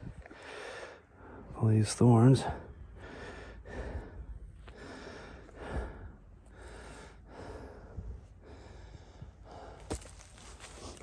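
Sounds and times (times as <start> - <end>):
man breathing hard: 0.1 - 1.6, 2.4 - 11.0
pushing through dense brush: 9.7 - 11.0.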